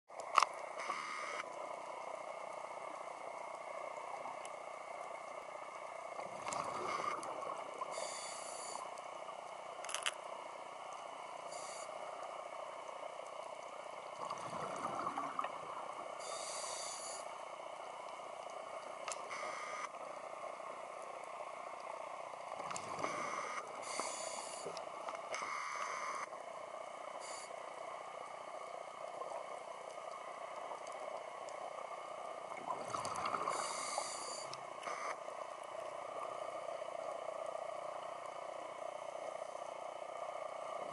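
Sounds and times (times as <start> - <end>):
faint clicks: 0.1 - 26.4, 27.1 - 40.9
steady underwater hiss: 0.1 - 40.9
underwater hiss: 6.2 - 9.0, 14.2 - 17.6, 19.2 - 19.9, 22.7 - 26.3, 27.1 - 28.0, 32.3 - 35.1
scuba exhaust bubbles: 14.1 - 16.7, 32.4 - 35.1.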